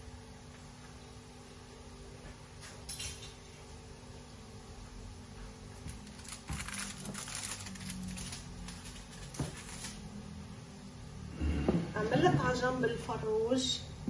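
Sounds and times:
foil crinkling: 5.8s - 10.1s.

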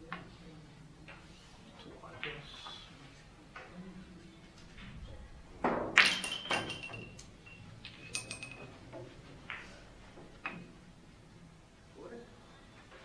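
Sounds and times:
billiard balls clicking: 5.6s - 10.8s.

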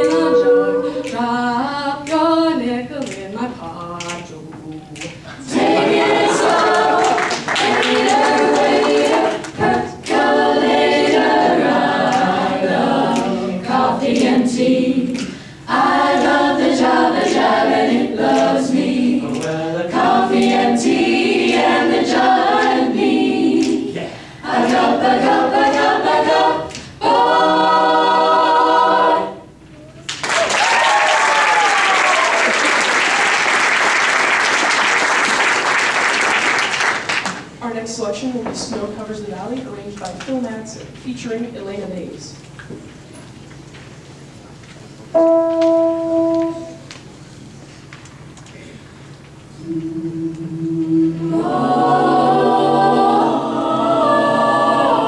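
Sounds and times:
a cappella group singing: 0.0s - 29.6s, 49.5s - 55.0s
audience applause: 5.7s - 9.6s, 30.1s - 37.5s.

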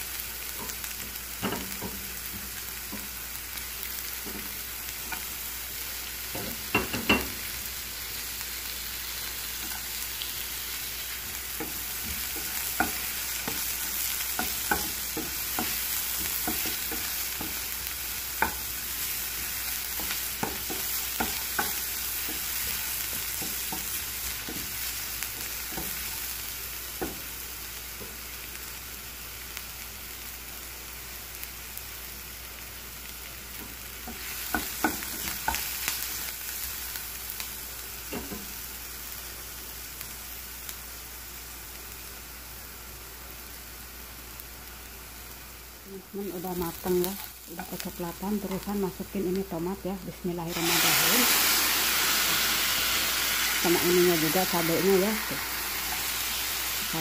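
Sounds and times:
food sizzling in hot oil: 0.0s - 57.0s
spatula stirring: 11.2s - 26.3s.

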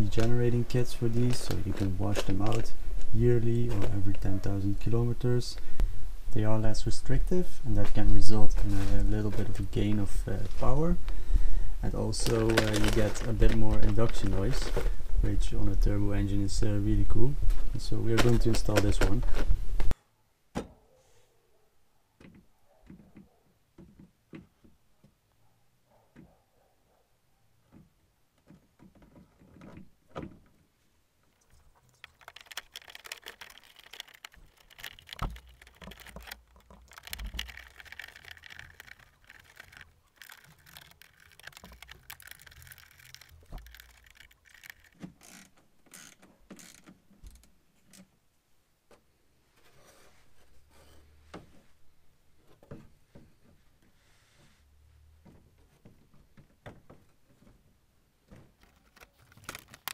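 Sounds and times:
screwdriver scraping: 31.5s - 46.8s.

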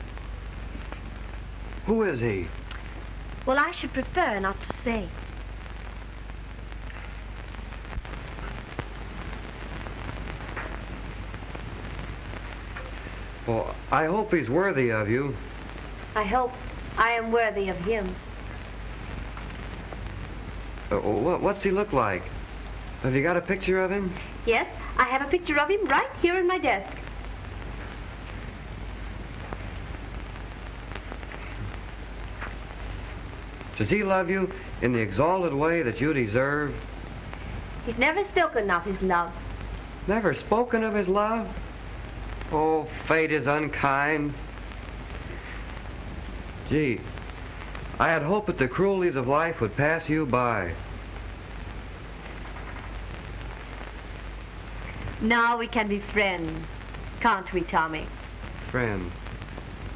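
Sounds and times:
film soundtrack hiss and crackle: 0.0s - 59.9s
low hum: 0.0s - 59.9s
faint clicks: 2.6s - 3.1s, 51.2s - 55.2s.

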